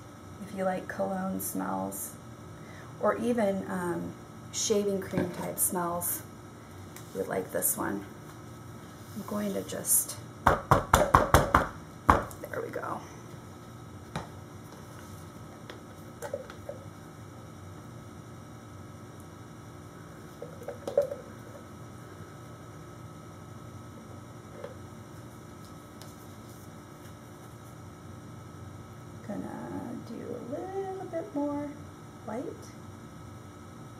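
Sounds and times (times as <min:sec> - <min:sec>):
low room hum: 0:00.0 - 0:33.9
faint clinks and knocks: 0:20.4 - 0:21.7.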